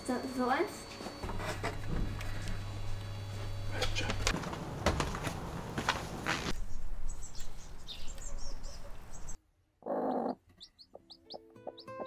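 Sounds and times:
small birds chirping: 6.6s - 12.0s
chick peeping: 7.9s - 12.0s.

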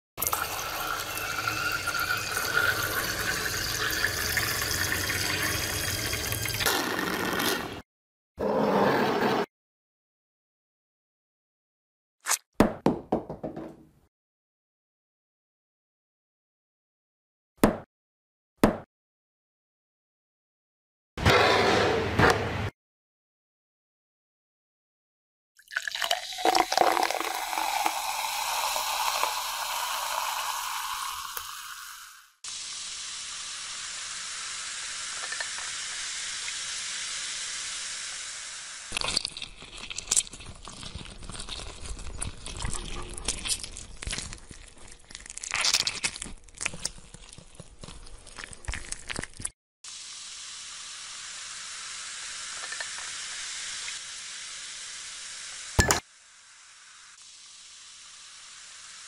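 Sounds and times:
fruit salt fizzing: 0.2s - 6.7s, 25.6s - 44.7s, 48.3s - 59.0s.

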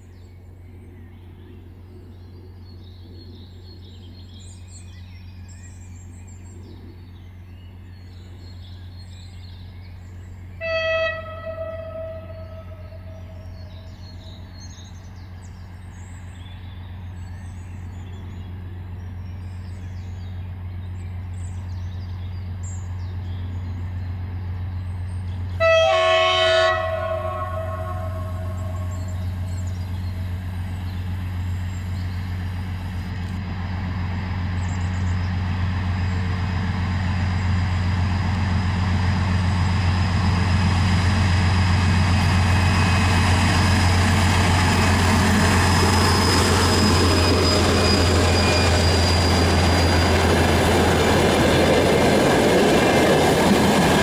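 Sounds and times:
diesel locomotive engine drone: 0.0s - 54.0s
train horn blast: 10.6s - 13.8s, 25.6s - 29.7s.

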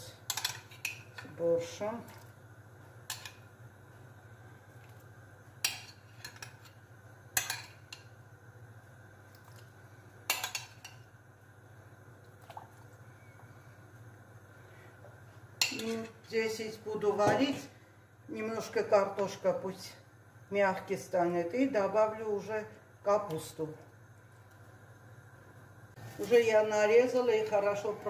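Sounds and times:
low steady hum: 0.0s - 28.0s
soft splashes: 12.3s - 13.0s.

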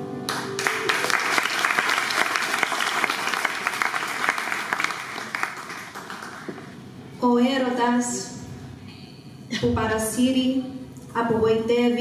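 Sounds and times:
backing music: 0.0s - 1.8s
audience applauding: 0.3s - 6.8s.

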